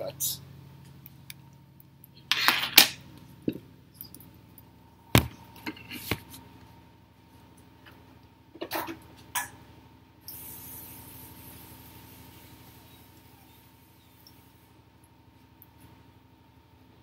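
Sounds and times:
faint steady hum: 0:00.0 - 0:17.0
phone rustling and knocking: 0:05.1 - 0:06.4.

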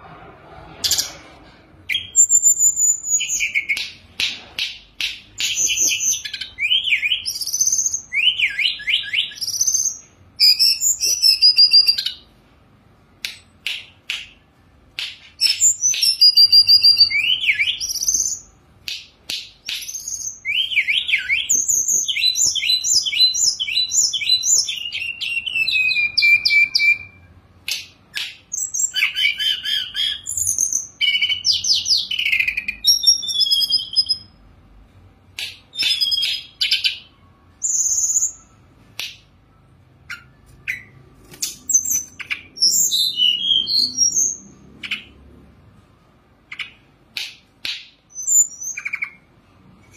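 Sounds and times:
bird singing whistled phrases: 0:05.4 - 0:12.2, 0:19.7 - 0:27.3, 0:28.2 - 0:34.3, 0:35.7 - 0:38.7, 0:40.0 - 0:45.0, 0:47.7 - 0:49.2.

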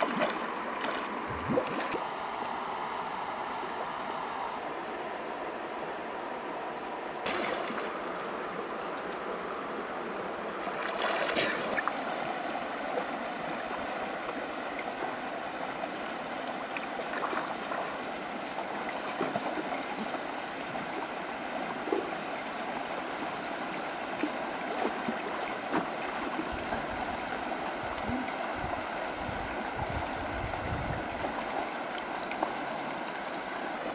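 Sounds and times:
flowing river water: 0:00.0 - 0:33.9
splashes or knocks: 0:07.2 - 0:08.0, 0:10.8 - 0:11.8.

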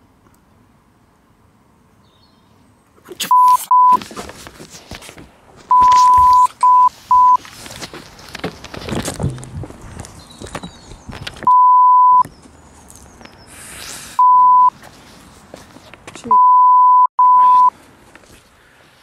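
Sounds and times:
censor bleep tone: 0:03.3 - 0:04.0, 0:05.7 - 0:07.4, 0:11.5 - 0:12.2, 0:14.2 - 0:14.7, 0:16.3 - 0:17.7
camera handling scuffling and knocking: 0:07.4 - 0:11.5.

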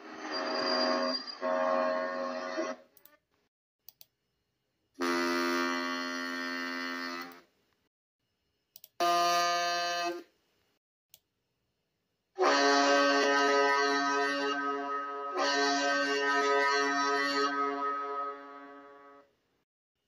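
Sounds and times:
ship horn blasts: 0:00.4 - 0:02.9, 0:05.0 - 0:07.4, 0:12.4 - 0:19.3
small clicks: 0:03.8 - 0:04.2, 0:08.7 - 0:09.0.

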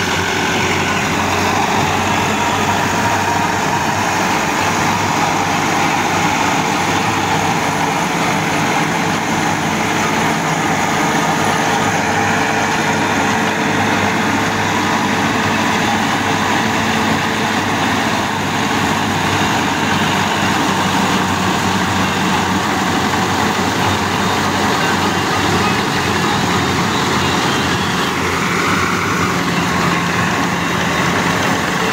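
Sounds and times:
tractor engine and straw chopper: 0:00.0 - 0:31.9.

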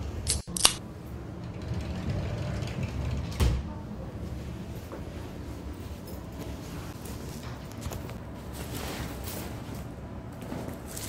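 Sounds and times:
steady low hum: 0:00.0 - 0:11.0
handling noise: 0:04.8 - 0:11.0.

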